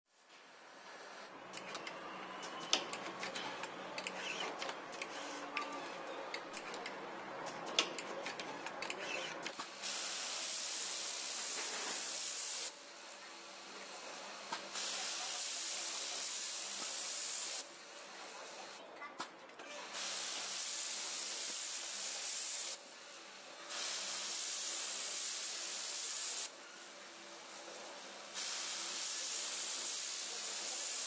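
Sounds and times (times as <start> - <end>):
pneumatic machinery clicks and clacks: 1.5 - 12.7, 14.4 - 22.8, 23.7 - 26.8, 27.6 - 31.0
steady air hiss: 9.7 - 12.8, 14.7 - 17.7, 19.9 - 26.7, 27.6 - 31.0.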